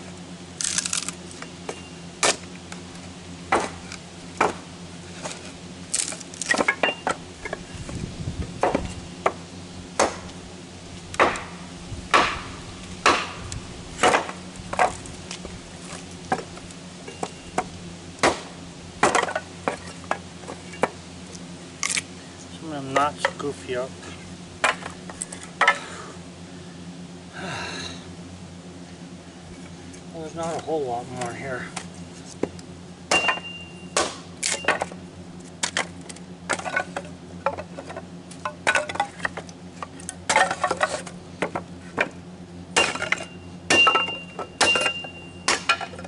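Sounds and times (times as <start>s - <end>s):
hatchet chopping wood: 0.6s - 2.5s, 3.5s - 7.6s, 8.6s - 9.4s, 10.0s - 10.4s, 11.2s - 15.0s, 17.2s - 21.0s, 24.6s - 25.0s, 31.7s - 35.0s, 42.8s - 46.0s.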